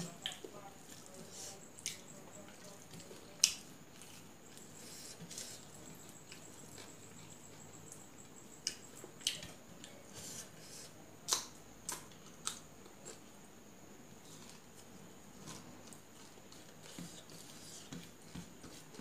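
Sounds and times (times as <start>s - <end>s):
chewing: 0.2s - 8.0s, 11.3s - 13.3s
sharp clicks and smacks: 11.3s - 12.6s
mixing rice by hand: 14.3s - 19.0s.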